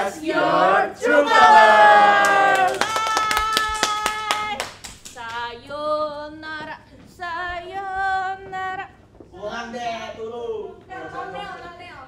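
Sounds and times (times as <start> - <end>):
hands clapping quickly: 2.2 - 5.5.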